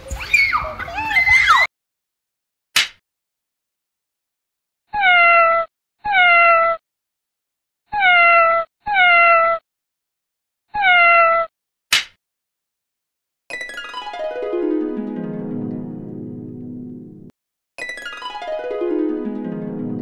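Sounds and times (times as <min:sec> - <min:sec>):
cat meowing: 0:04.9 - 0:06.8, 0:07.9 - 0:09.6, 0:10.7 - 0:11.5.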